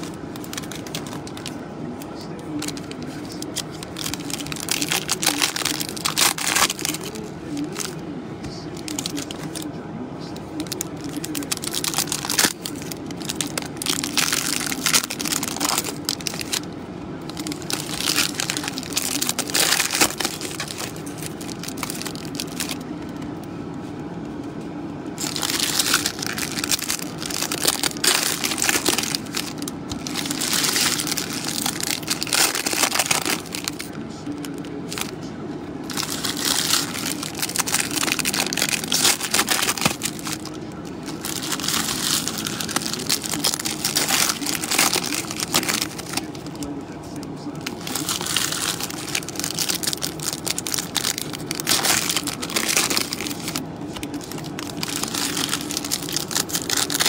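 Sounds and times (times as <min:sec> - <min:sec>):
card packs being torn open: 0:00.0 - 0:08.0, 0:08.6 - 0:09.7, 0:10.6 - 0:16.7, 0:17.3 - 0:23.2, 0:25.2 - 0:35.2, 0:35.8 - 0:46.7, 0:47.5 - 0:57.0.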